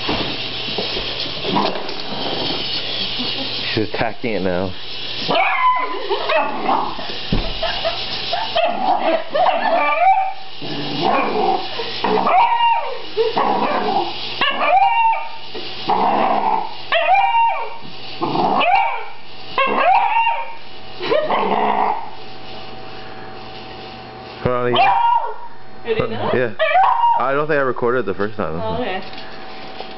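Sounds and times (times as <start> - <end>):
dog barking: 13.7 - 15.3, 18.6 - 20.6, 24.7 - 25.5, 26.6 - 27.2.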